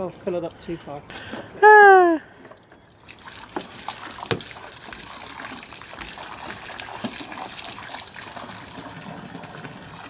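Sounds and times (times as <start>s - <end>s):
hose water splashing into water: 2.9s - 10.0s.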